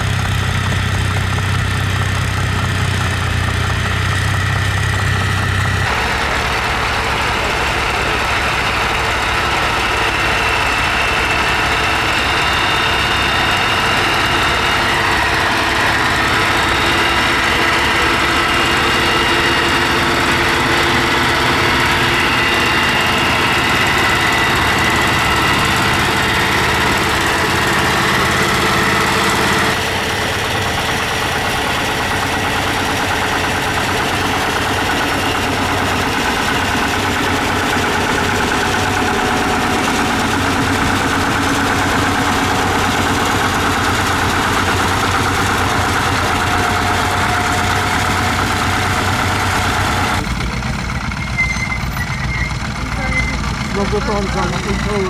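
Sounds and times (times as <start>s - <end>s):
tractor engine running: 0.0s - 55.0s.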